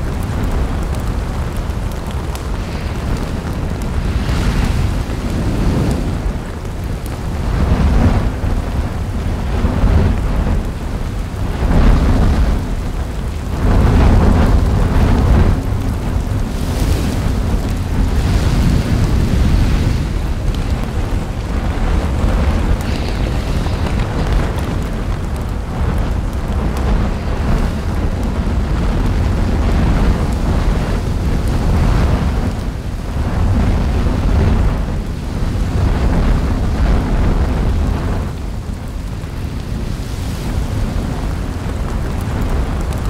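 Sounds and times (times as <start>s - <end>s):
deep rumble of lava fountaining: 0.0s - 43.0s
hiss of lava spatter: 0.3s - 10.7s, 13.6s - 34.7s.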